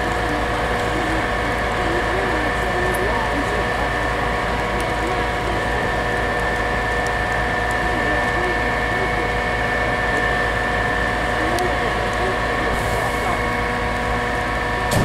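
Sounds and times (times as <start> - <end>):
diesel truck engine running: 0.0 - 15.0
steady high whine: 0.0 - 15.0.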